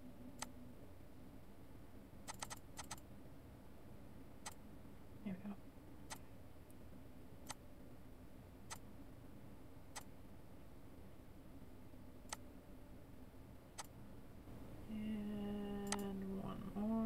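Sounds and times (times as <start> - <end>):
faint low hum: 0.0 - 17.0
computer mouse clicking: 2.3 - 3.0, 15.8 - 16.1.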